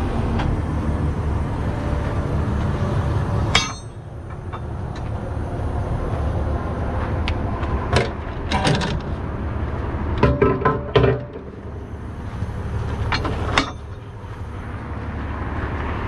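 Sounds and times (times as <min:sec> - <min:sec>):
tow truck engine rumble: 0:00.0 - 0:16.0
sharp metal clank: 0:03.5 - 0:04.6, 0:13.2 - 0:14.0.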